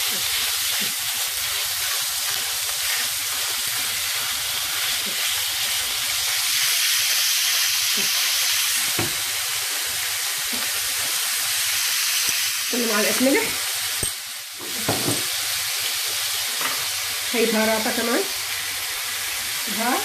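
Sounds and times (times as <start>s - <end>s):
spatula stirring in a pan: 0.0s - 7.2s
meat sizzling in a pan: 0.0s - 20.0s.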